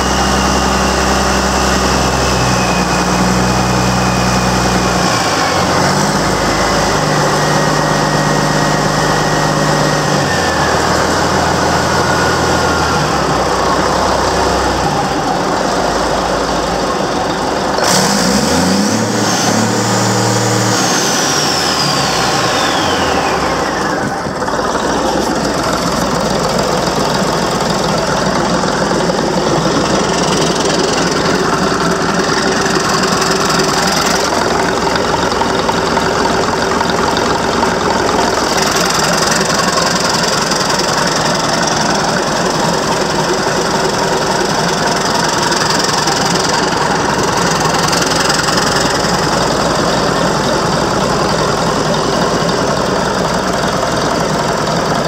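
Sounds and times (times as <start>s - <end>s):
diesel engine clattering: 0.0s - 55.0s
turbo whistle: 19.2s - 24.2s.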